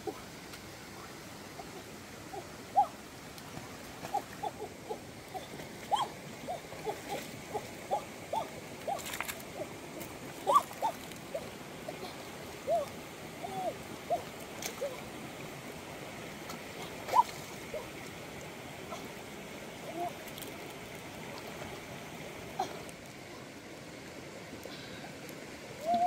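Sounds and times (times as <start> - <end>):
stream water running: 0.0 - 26.0
chirping animal calls: 4.1 - 9.0.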